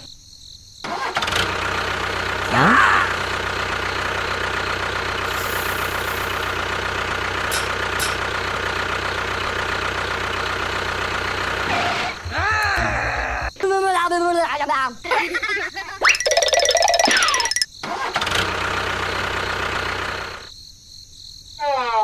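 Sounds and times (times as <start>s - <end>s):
engine idling: 0.9s - 13.6s, 17.2s - 20.5s.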